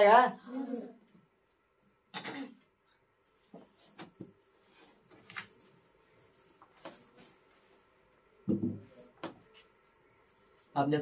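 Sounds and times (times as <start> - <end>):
soft knocks: 8.5 - 9.4.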